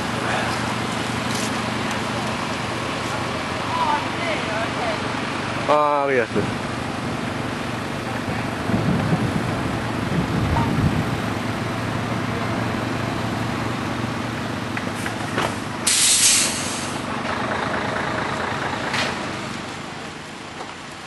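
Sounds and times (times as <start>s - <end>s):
crane diesel engine running: 0.0s - 21.0s
hiss of released air: 15.8s - 17.0s.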